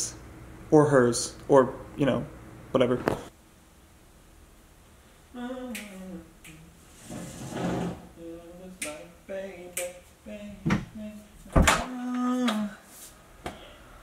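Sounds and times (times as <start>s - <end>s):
person humming a tune: 5.3s - 6.8s, 8.1s - 12.9s
finger snaps: 5.7s - 6.6s, 8.8s - 9.0s, 9.7s - 10.0s.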